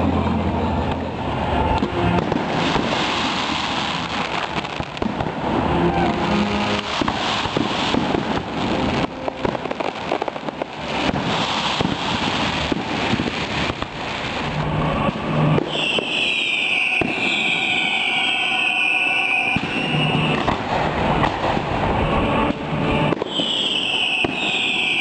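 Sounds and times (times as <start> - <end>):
fireworks crackling and banging: 0.0 - 25.0
high wavering whistle: 14.8 - 20.6, 22.0 - 25.0.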